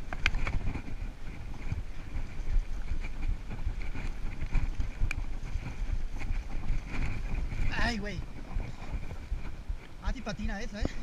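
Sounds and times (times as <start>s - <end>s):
bike rumble and rattle: 0.0s - 11.0s
wind buffeting microphone: 0.0s - 11.0s.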